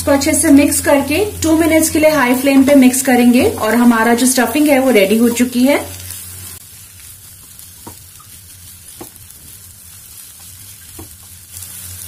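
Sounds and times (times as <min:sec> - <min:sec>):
soft sizzle: 0:00.0 - 0:12.0
spatula stirring in a pan: 0:05.1 - 0:12.0.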